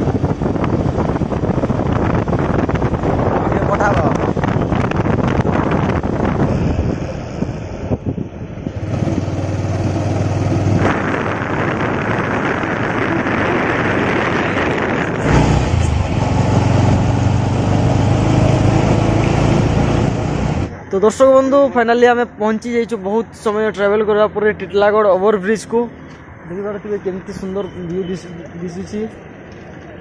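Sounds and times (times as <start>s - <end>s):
motorcycle engine hum: 0.0s - 21.2s
wind rushing: 0.0s - 21.8s.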